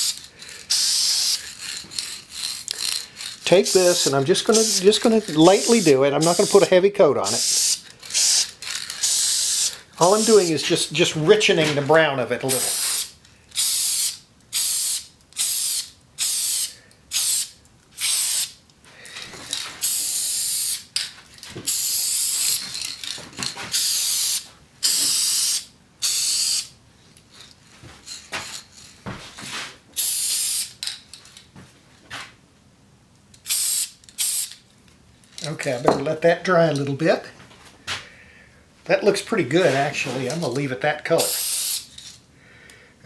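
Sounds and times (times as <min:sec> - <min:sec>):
aerosol spray hissing: 0:00.0 - 0:01.6, 0:03.5 - 0:10.7, 0:12.5 - 0:18.6, 0:19.8 - 0:20.9, 0:21.7 - 0:22.6, 0:23.7 - 0:26.7, 0:33.5 - 0:34.5, 0:41.2 - 0:41.9.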